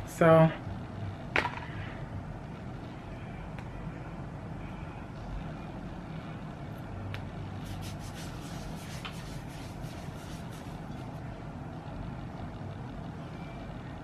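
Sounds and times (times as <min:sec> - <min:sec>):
low background rumble: 0:00.0 - 0:14.0
wrists rubbing together: 0:07.6 - 0:11.2.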